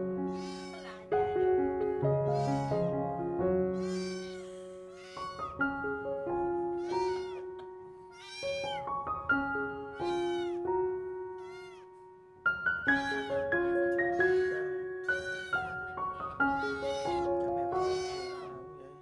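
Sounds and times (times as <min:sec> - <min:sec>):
background music: 0:00.0 - 0:19.0
kitten meowing: 0:00.3 - 0:01.5, 0:02.2 - 0:02.9, 0:03.8 - 0:06.0, 0:06.6 - 0:09.0, 0:09.6 - 0:12.0, 0:12.9 - 0:13.5, 0:14.1 - 0:19.0.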